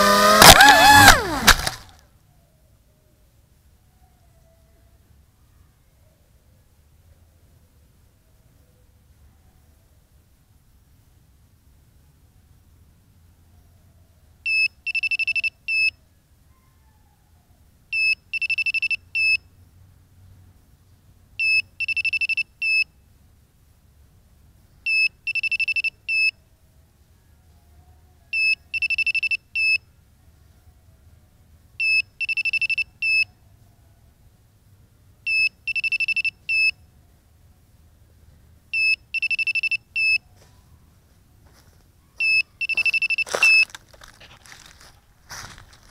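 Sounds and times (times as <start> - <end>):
rustle and crackle: 0.4 - 2.1, 40.1 - 45.9
drone locator beeps: 18.0 - 19.4, 28.4 - 29.8, 31.8 - 33.2, 35.3 - 36.7, 38.8 - 40.2, 42.2 - 43.7.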